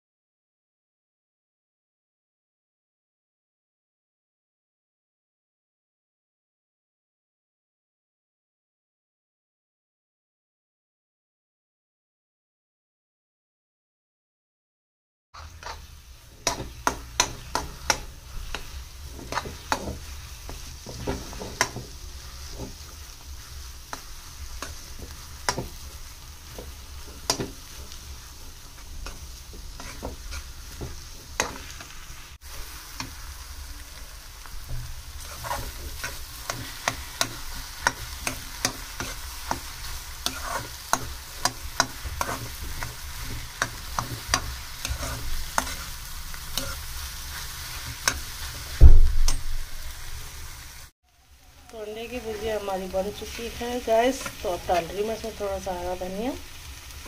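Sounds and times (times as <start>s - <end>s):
metal spatula scraping frying pan: 15.4s - 33.4s, 34.6s - 50.5s
food sizzling: 15.4s - 57.0s.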